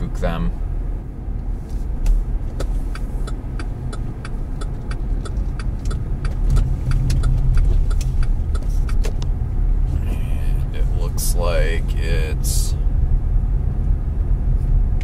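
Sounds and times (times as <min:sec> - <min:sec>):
car engine and road rumble: 0:00.0 - 0:15.0
regular sharp ticking: 0:02.5 - 0:09.4.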